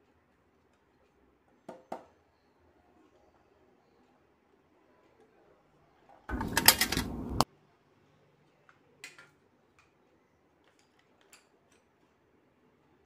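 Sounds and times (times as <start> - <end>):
rapid clicking like typing: 6.3 - 7.4.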